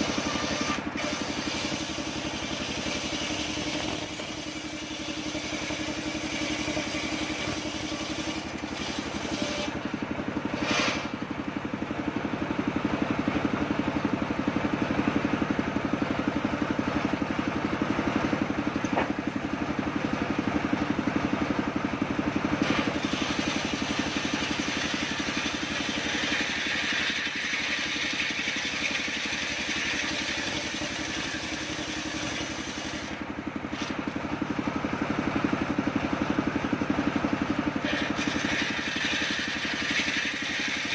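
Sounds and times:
saw blade rasping through log: 0.0s - 11.2s, 22.6s - 34.2s, 37.8s - 40.9s
sawbench engine running: 0.0s - 40.9s.

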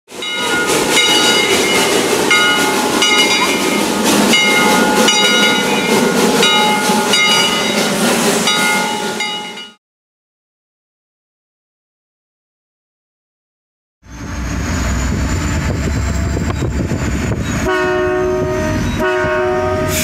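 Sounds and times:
steam hiss: 0.1s - 9.4s
steam locomotive chuffing: 0.1s - 9.8s, 14.1s - 20.0s
steady high tones: 0.2s - 9.8s.

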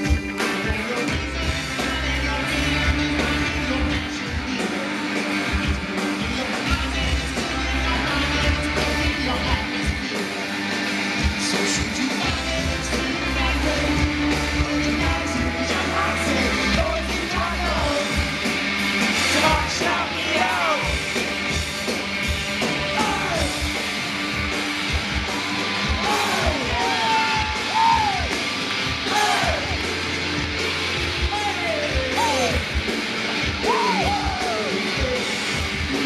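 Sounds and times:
lead singer singing: 0.0s - 21.0s, 22.8s - 23.6s, 25.4s - 28.3s, 29.0s - 29.8s, 33.6s - 36.0s
live band playing amplified music: 0.0s - 36.0s.

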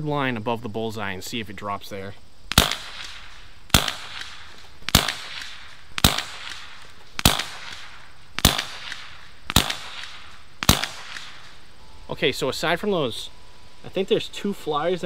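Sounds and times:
air rifle shots: 2.5s - 11.7s.

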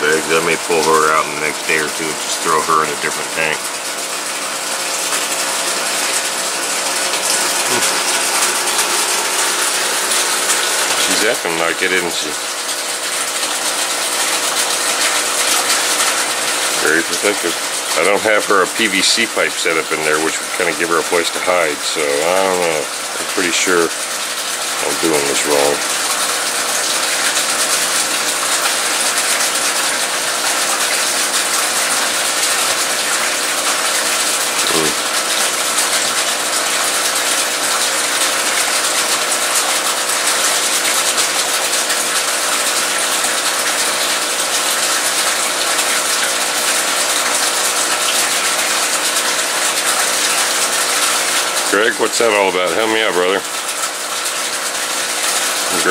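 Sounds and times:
steady hum: 0.0s - 23.9s
air bubbles fizzing in aquarium: 0.0s - 55.9s.

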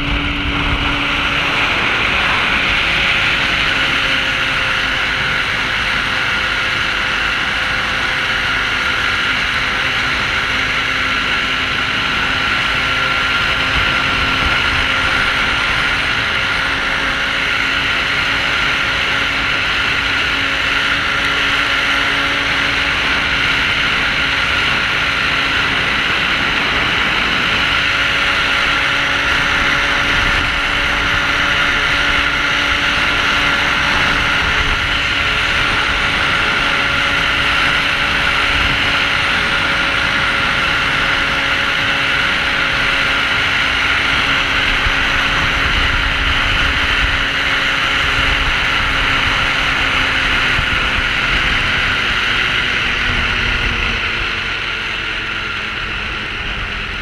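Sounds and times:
hiss of track and wind: 0.0s - 57.0s
snowmobile engine running: 0.0s - 57.0s.

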